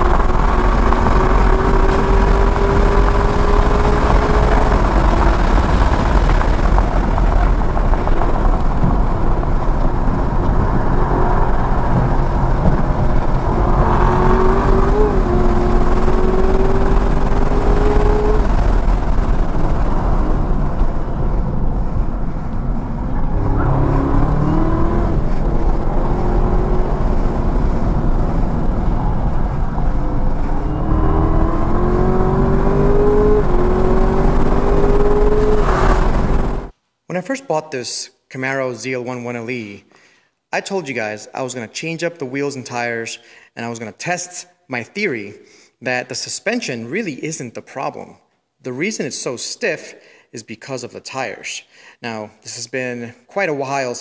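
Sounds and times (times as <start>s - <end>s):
car engine revving: 0.0s - 36.7s
wind and tyre noise: 0.0s - 36.8s.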